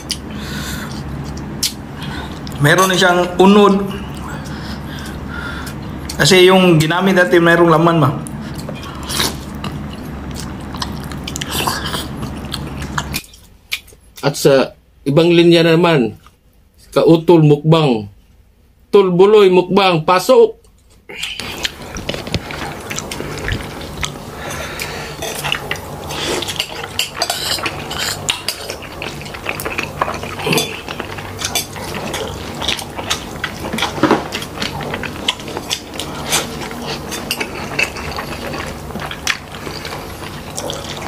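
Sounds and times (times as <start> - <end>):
person chewing crunchy food: 0.0 - 3.0, 8.3 - 14.1, 20.8 - 41.0
steady low hum: 0.0 - 41.0.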